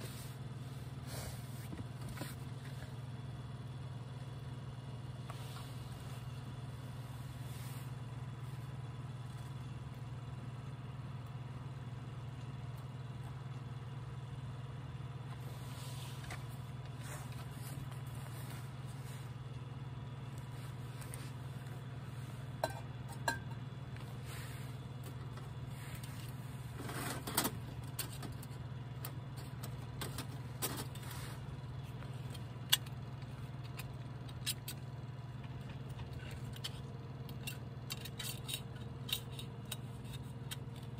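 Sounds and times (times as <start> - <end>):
steady low rumble: 0.0 - 26.8.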